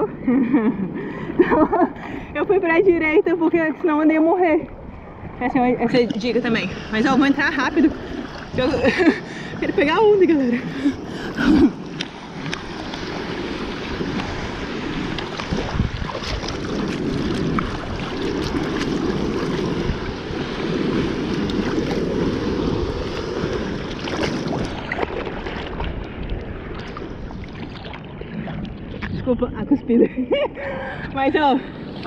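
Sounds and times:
choppy waves: 0.0 - 32.0
wind buffeting microphone: 0.0 - 32.0
water splashing against bodyboard: 9.8 - 29.4.

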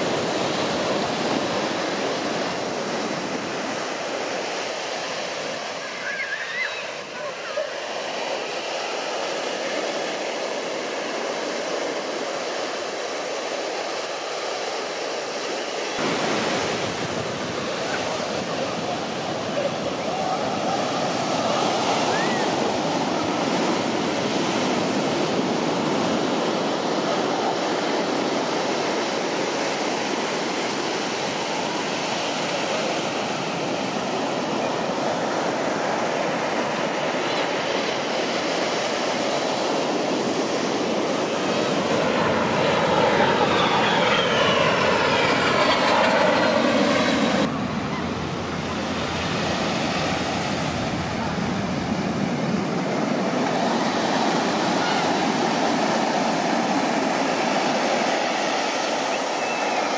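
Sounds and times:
beach surf rushing: 0.0 - 59.9
aircraft passing: 15.8 - 59.9.

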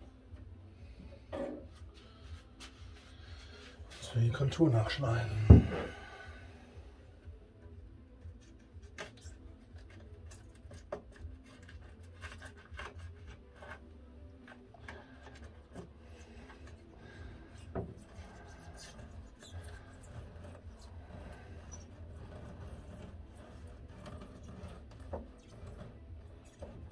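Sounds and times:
knife cutting cork sheet: 8.9 - 13.9.

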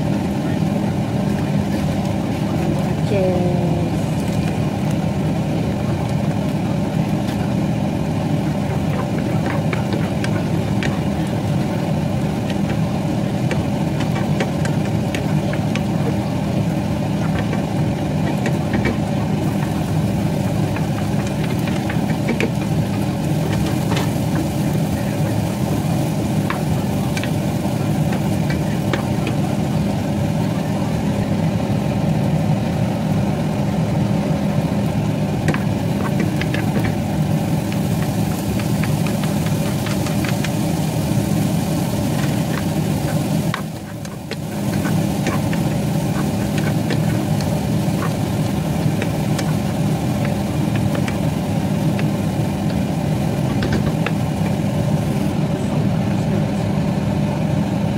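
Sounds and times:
mechanical hum: 0.0 - 57.9.

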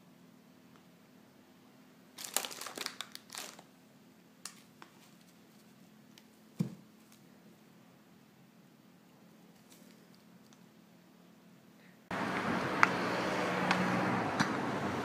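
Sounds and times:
plastic wrapping crinkling: 2.2 - 3.7
dull thump: 6.6 - 6.8.

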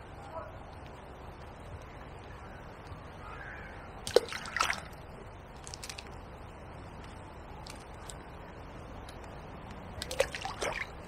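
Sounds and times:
balls plopping into river: 4.0 - 5.0, 9.9 - 11.0.

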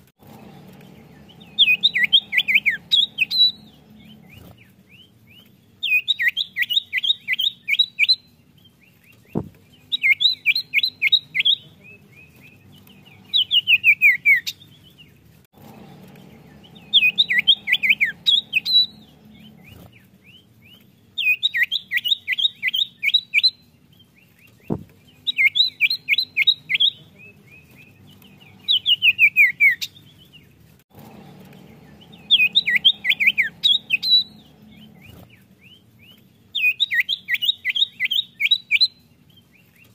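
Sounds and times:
bird whistled chirps: 1.0 - 8.3, 9.3 - 11.6, 12.3 - 14.6, 16.4 - 20.5, 21.2 - 23.6, 24.5 - 29.9, 31.6 - 39.1.

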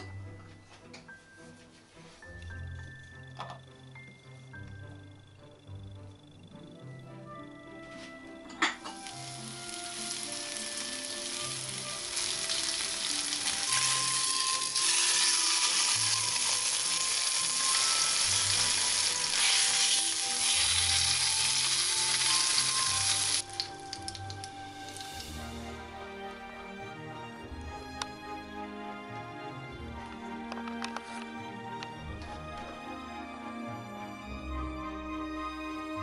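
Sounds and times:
meat sizzling in a frying pan: 9.0 - 25.2.

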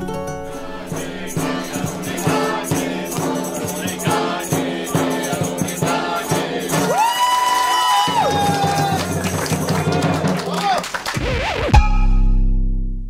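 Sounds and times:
plucked string instrument: 0.0 - 6.8
hand drum beat: 0.0 - 10.4
voices singing together: 0.1 - 8.5.

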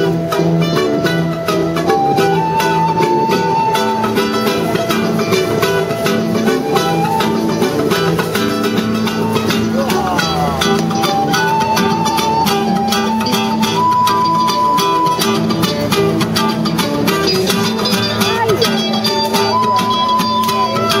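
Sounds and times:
strummed acoustic guitar: 0.0 - 21.0.

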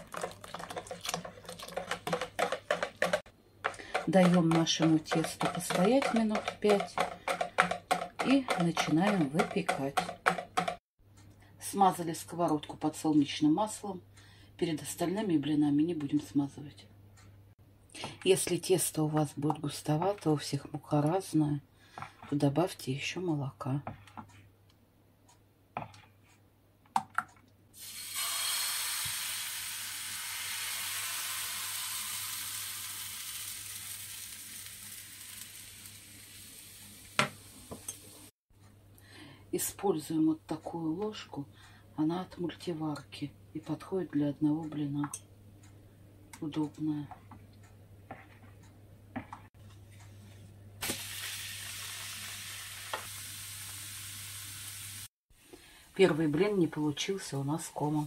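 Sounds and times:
batter sizzling in a frying pan: 27.8 - 38.3, 50.8 - 55.1.

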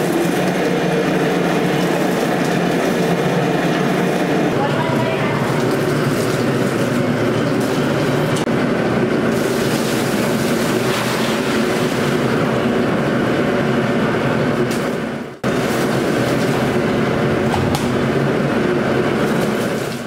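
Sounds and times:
machinery drone: 0.0 - 10.5, 11.4 - 20.0
water hissing from a hose: 9.3 - 12.3
water splashing from ice can: 9.3 - 12.3, 15.5 - 16.9.

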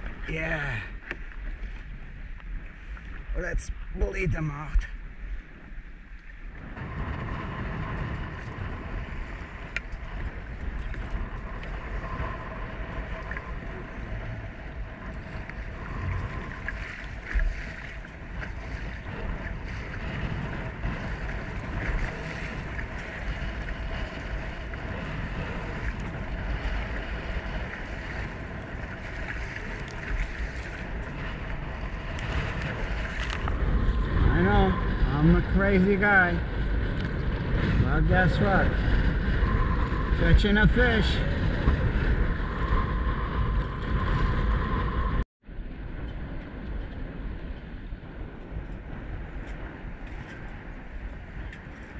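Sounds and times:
wind buffeting microphone: 0.0 - 51.9
water splashing against kayak hull: 4.9 - 35.0.

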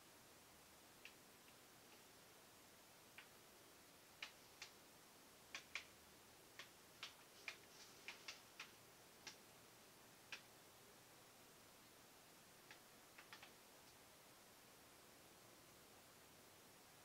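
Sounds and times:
faint sharp ticks: 5.5 - 5.9, 12.6 - 14.0.

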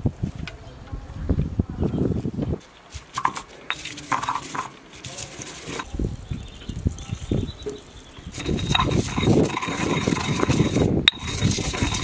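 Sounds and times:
pestle knocking and grinding in mortar: 3.0 - 12.0.

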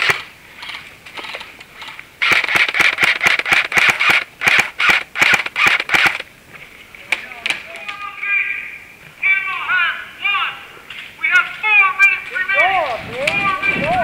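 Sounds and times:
airsoft guns firing bursts: 0.0 - 6.3.

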